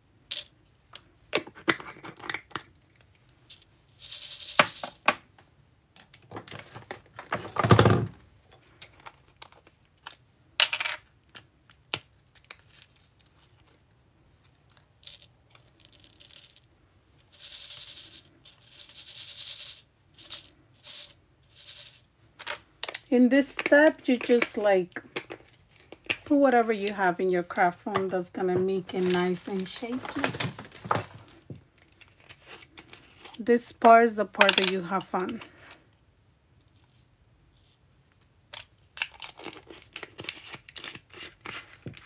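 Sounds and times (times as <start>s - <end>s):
rustling: 28.7s - 33.4s.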